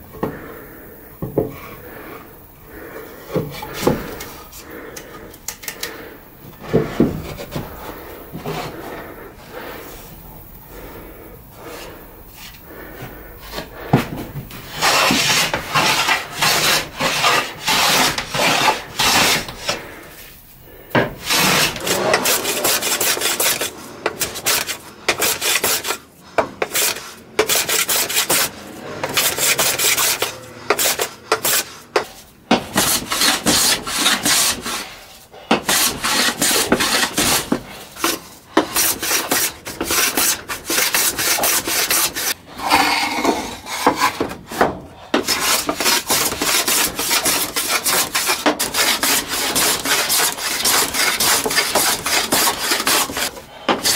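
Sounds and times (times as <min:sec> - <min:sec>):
hand plane shaving wood: 0:12.7 - 0:20.0, 0:21.0 - 0:53.9.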